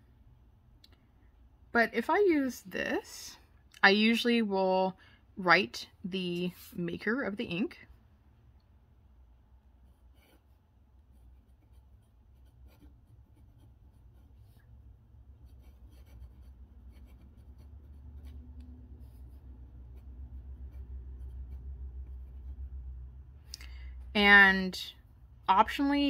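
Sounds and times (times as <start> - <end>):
pen nib scratching on paper: 9.8 - 14.7, 15.3 - 22.7.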